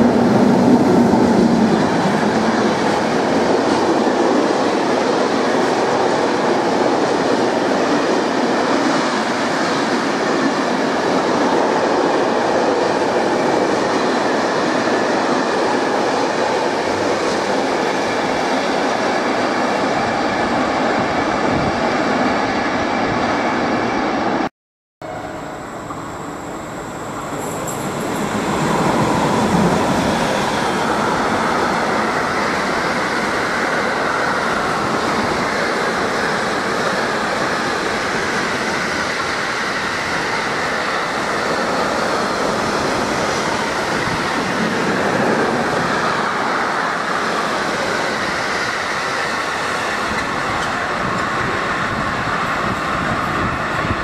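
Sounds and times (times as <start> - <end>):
freight train rumbling on rails: 0.0 - 54.0.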